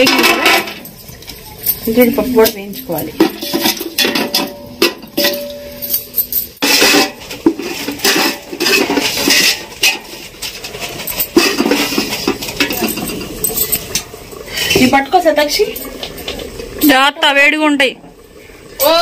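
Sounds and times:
metal ladle clinking on pot: 0:03.2 - 0:10.3
oil hissing: 0:06.6 - 0:16.9.

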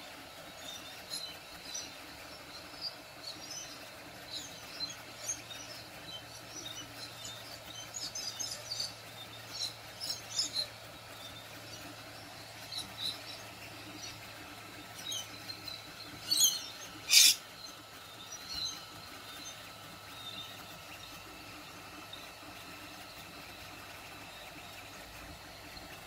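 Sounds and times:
faint printer hum: 0:00.0 - 0:26.0
parrots chirping and screeching: 0:15.0 - 0:19.6.

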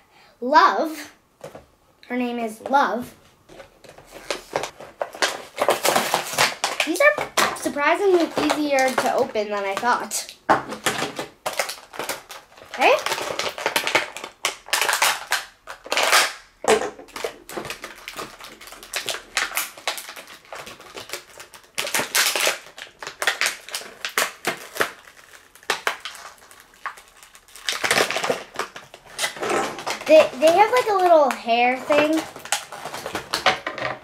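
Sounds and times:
plastic packaging crackling: 0:03.5 - 0:33.8.

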